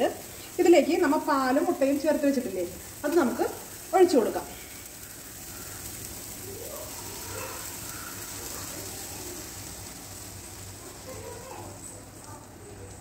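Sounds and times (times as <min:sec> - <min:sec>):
liquid pouring into pan: 0:00.0 - 0:13.0
oil sizzling: 0:00.0 - 0:13.0.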